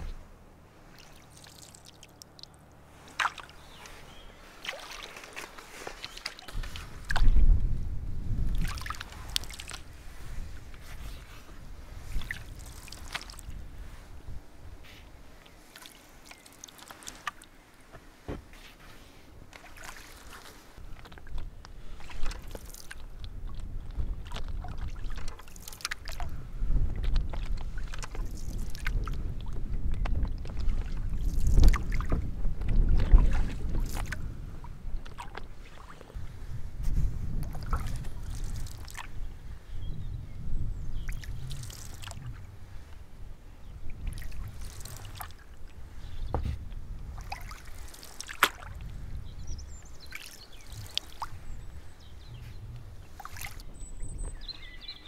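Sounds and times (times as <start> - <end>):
paddle strokes in water: 0.0 - 55.0
water dripping off paddle: 0.9 - 7.4, 8.5 - 9.9, 12.1 - 13.6, 15.4 - 17.6, 19.5 - 34.3, 34.9 - 36.2, 37.3 - 39.2, 41.0 - 42.4, 43.8 - 45.8, 47.0 - 49.1, 50.0 - 51.4, 53.1 - 53.7.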